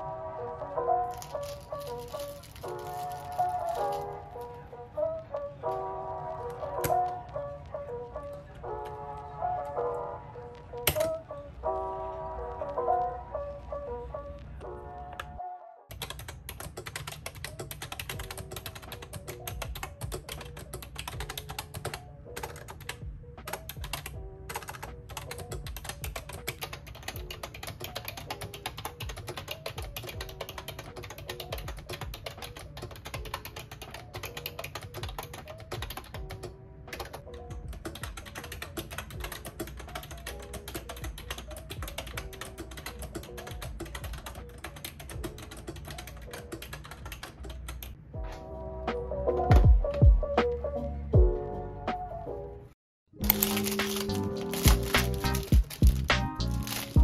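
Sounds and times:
fast mechanical keyboard typing: 1.0 - 4.6, 15.9 - 48.0, 53.2 - 57.0.

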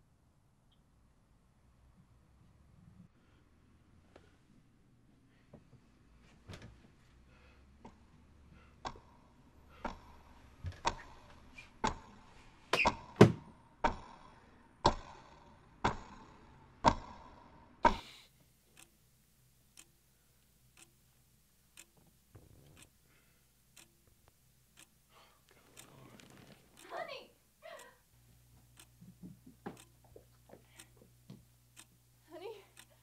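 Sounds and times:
faint clock tick: 7.4 - 12.3, 13.9 - 33.0
clock ticking: 13.8 - 33.0.

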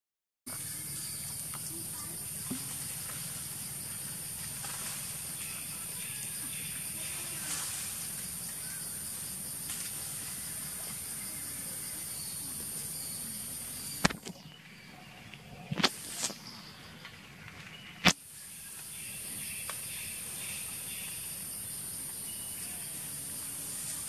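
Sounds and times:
faint ticks and rustles: 0.5 - 12.6
forest ambience hiss: 0.5 - 24.0
sharp click: 14.0 - 14.4.

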